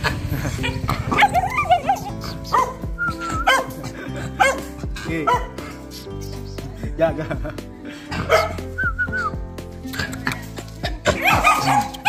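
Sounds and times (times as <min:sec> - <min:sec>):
background music: 0:00.0 - 0:12.0
small dog barking: 0:01.1 - 0:02.8, 0:03.4 - 0:03.8, 0:04.4 - 0:04.6, 0:08.3 - 0:08.6, 0:11.1 - 0:12.0.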